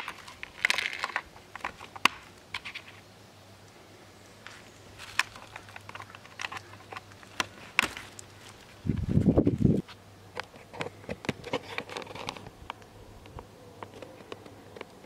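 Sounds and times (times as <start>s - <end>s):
plastic clicks and scrapes: 0.0s - 3.0s, 5.0s - 8.2s, 10.3s - 15.0s.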